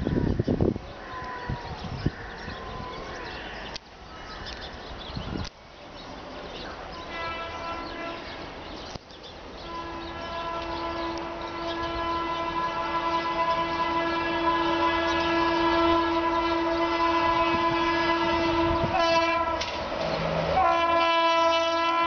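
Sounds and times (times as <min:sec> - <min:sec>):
locomotive horn blasts: 0:07.0 - 0:08.4, 0:09.6 - 0:19.9, 0:20.5 - 0:22.0.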